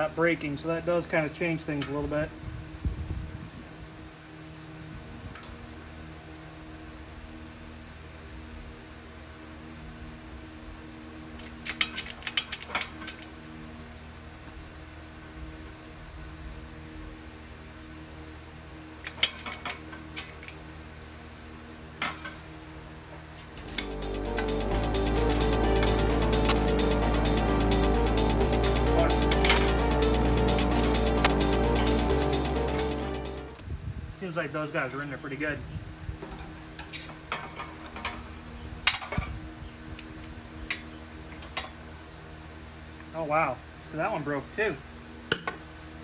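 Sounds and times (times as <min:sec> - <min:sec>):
metallic clicks and clinks: 0:11.4 - 0:13.2
background music: 0:23.6 - 0:33.6.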